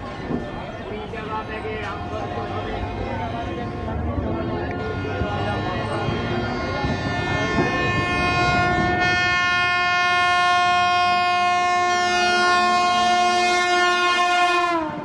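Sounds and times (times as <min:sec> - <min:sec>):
train air horn blast: 0:04.8 - 0:15.0.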